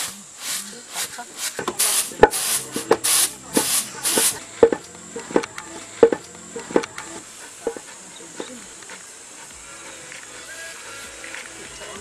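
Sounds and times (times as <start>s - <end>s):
grain swishing on winnowing tray: 0.0s - 4.4s
pestle pounding in wooden mortar: 0.0s - 7.9s.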